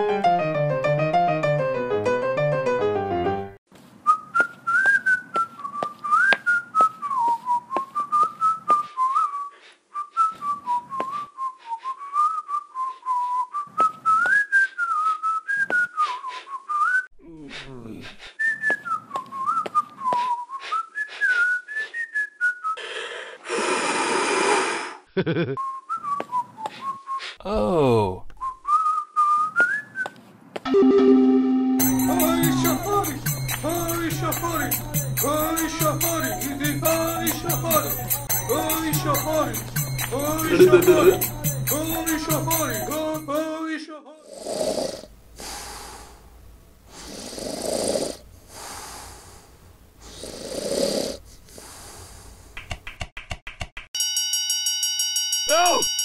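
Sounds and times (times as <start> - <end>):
person whistling a tune: 4.1 - 17.1, 18.4 - 22.8, 25.6 - 27.4, 28.4 - 30.2, 30.8 - 43.4.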